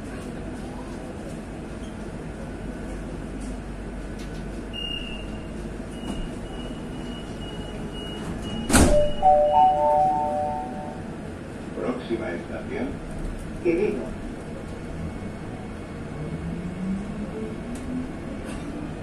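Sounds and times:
train doors shutting: 3.3s - 11.4s, 17.6s - 19.0s
high door warning beep: 4.8s - 10.9s
three-note chime: 9.0s - 11.0s.

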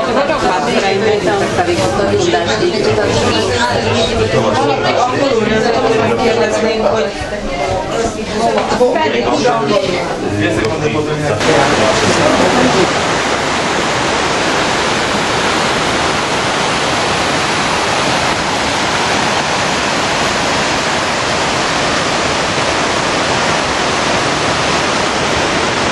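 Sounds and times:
stream rushing over boulders: 11.4s - 25.9s.

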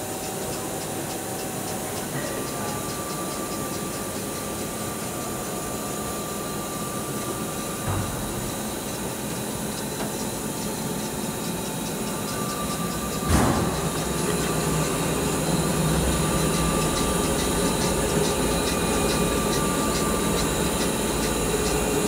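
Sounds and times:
machine hum: 0.0s - 22.0s
thin machine whine: 0.0s - 22.0s
short machine knock: 7.8s - 8.6s, 13.1s - 14.5s.

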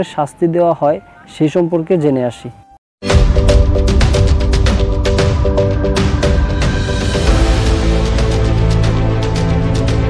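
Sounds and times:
electronic intro music with bass: 3.0s - 10.0s
repeating chord figure: 3.1s - 10.0s.

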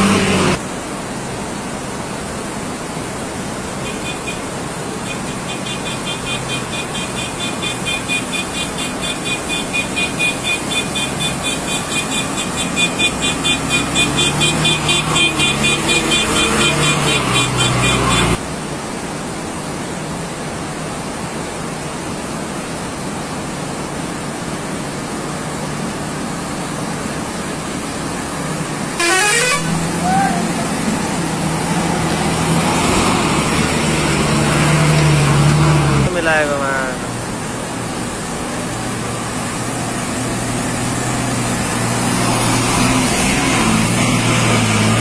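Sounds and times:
bus engine revving: 0.0s - 0.6s, 5.1s - 18.4s, 29.0s - 36.2s, 38.6s - 45.0s
rushing water: 0.0s - 45.0s
traffic: 0.0s - 45.0s.

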